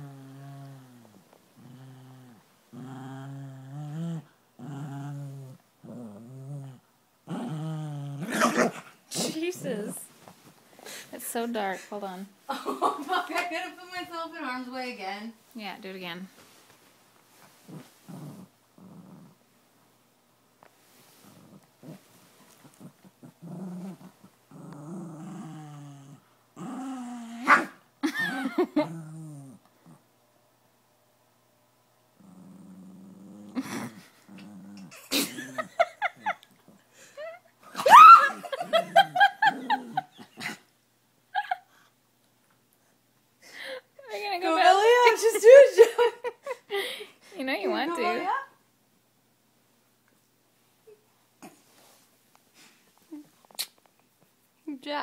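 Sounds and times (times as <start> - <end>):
small dog growling: 0.0 - 10.0, 17.6 - 19.4, 21.2 - 27.7, 28.6 - 30.1, 32.2 - 35.6, 38.8 - 40.6.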